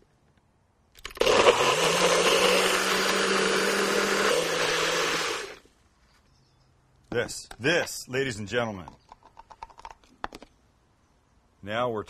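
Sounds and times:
blender running at full speed: 1.0s - 5.6s.

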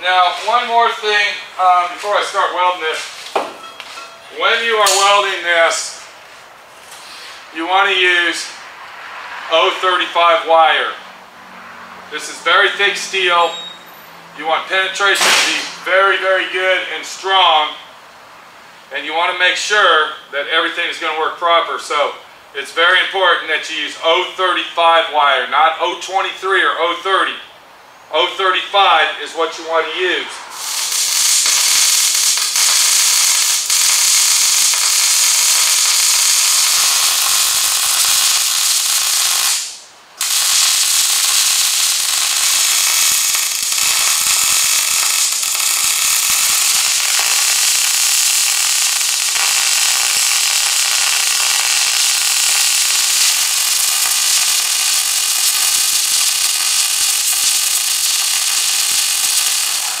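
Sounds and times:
welder arc crackling: 0.0s - 6.2s, 15.1s - 15.9s, 30.5s - 60.0s.

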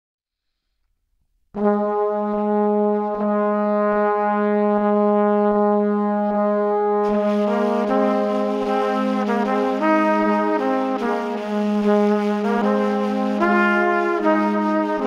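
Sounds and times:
higher brass melody: 1.6s - 15.0s
held brass note: 5.5s - 15.0s.

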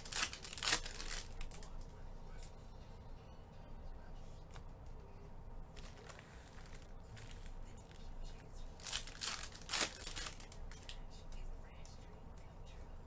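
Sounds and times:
foil wrappers crinkling: 0.0s - 1.7s, 5.8s - 8.0s, 8.8s - 10.9s
cards being handled: 0.0s - 2.0s, 5.7s - 8.1s, 8.8s - 11.4s.

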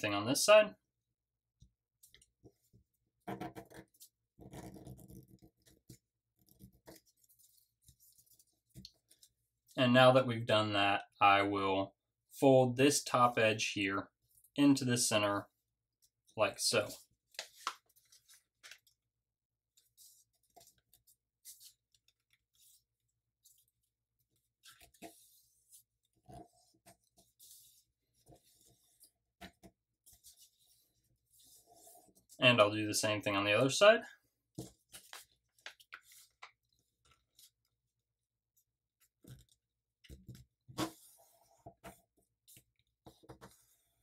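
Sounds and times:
soft paper crinkles: 5.4s - 9.8s, 16.9s - 19.1s, 19.7s - 29.2s, 34.6s - 44.0s
paper rustling and creasing: 16.9s - 19.0s, 19.7s - 32.4s, 34.6s - 38.0s
paper sliding and scraping: 19.8s - 29.2s, 30.0s - 32.4s, 40.7s - 42.7s.

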